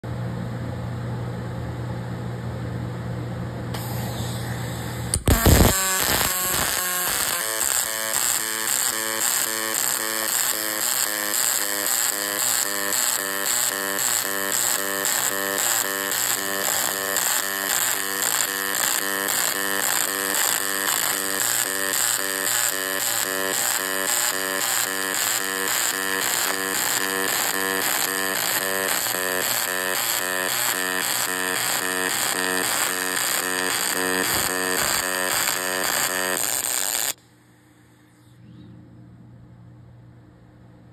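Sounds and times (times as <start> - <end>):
machine hum: 2.3 - 40.9
arc welding buzz: 3.7 - 37.2.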